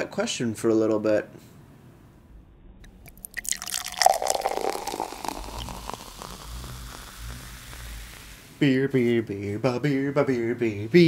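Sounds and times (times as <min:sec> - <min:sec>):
beer pouring into a glass: 0:03.0 - 0:08.4
foam fizzing hiss: 0:03.3 - 0:08.6.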